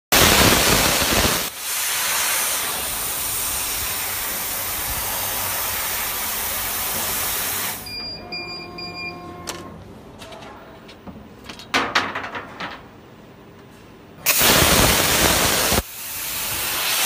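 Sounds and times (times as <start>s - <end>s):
air-assist jet hissing: 0.6s - 7.9s, 14.3s - 17.0s.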